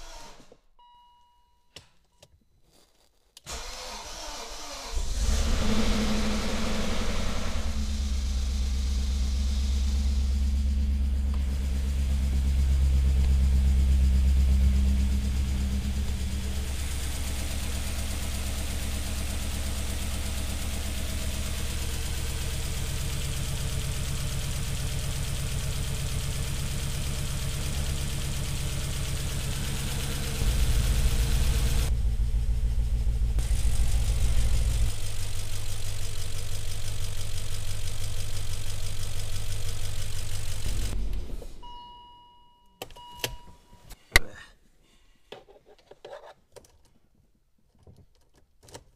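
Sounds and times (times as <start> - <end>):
car engine idling with misfire: 3.5 - 41.7.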